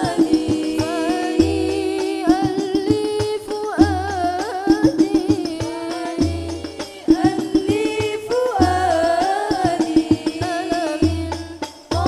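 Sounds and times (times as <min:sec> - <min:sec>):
frame drums beating: 0:00.0 - 0:12.0
women singing together: 0:00.0 - 0:12.0.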